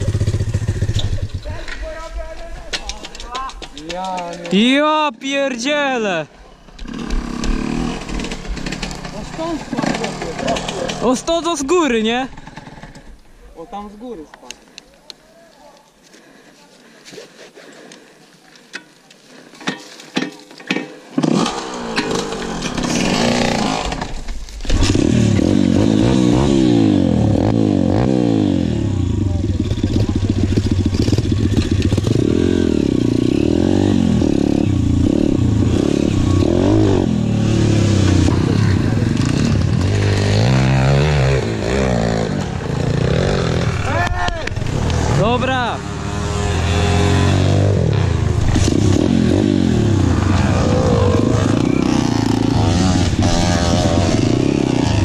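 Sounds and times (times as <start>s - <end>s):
dirt bike engine revving: 0.0s - 1.5s, 6.6s - 13.2s, 21.2s - 55.0s.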